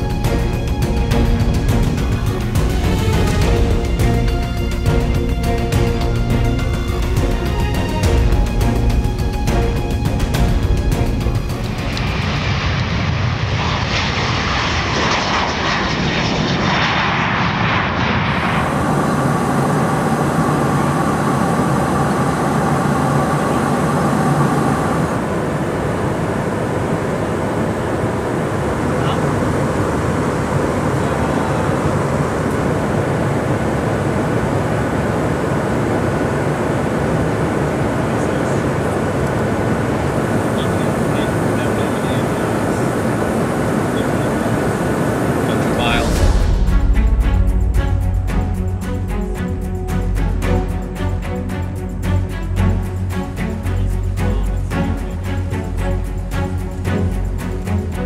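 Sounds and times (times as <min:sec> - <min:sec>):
jet engine noise: 0:00.0 - 0:58.0.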